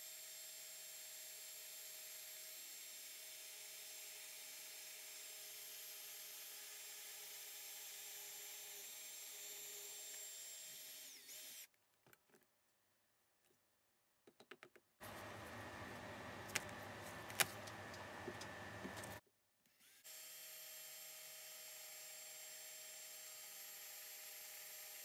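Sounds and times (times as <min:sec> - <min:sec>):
electric drill boring into metal: 0:01.0 - 0:11.7.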